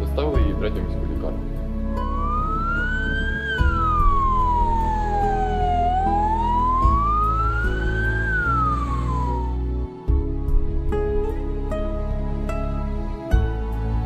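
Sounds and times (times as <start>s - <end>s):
ambulance siren wailing: 2.0s - 9.8s.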